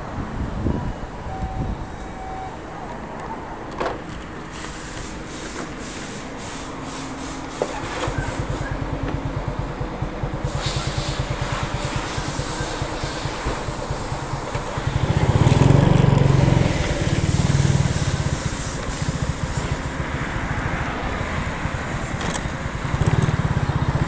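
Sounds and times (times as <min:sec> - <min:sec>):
motorcycle engine idling: 0:08.1 - 0:24.0.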